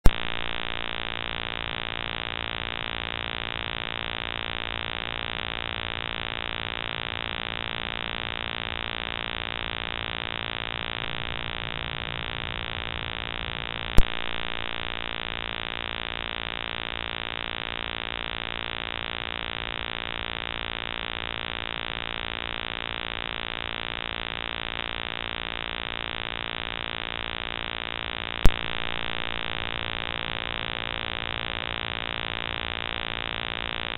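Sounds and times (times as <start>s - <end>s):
electronic buzz: 0.0s - 33.9s
sharp click: 28.4s - 28.7s.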